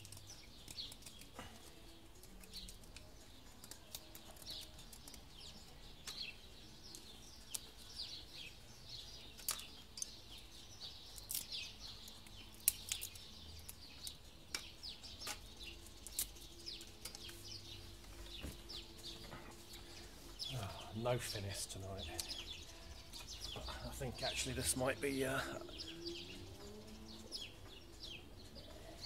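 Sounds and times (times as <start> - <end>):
kindling sticks clicking: 0.0 - 8.1, 9.2 - 20.5
small birds chirping: 0.0 - 29.0.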